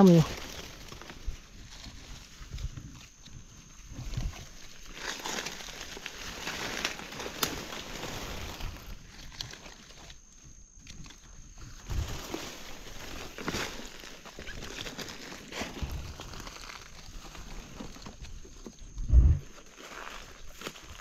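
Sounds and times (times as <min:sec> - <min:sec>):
dry leaves rustling and crunching: 0:00.0 - 0:21.0.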